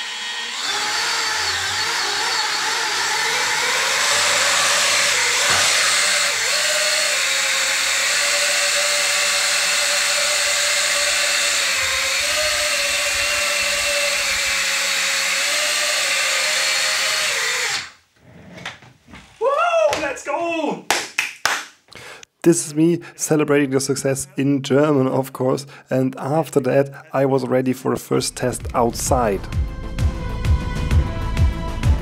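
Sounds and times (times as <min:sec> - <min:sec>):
drone motors whining: 0:00.0 - 0:18.0.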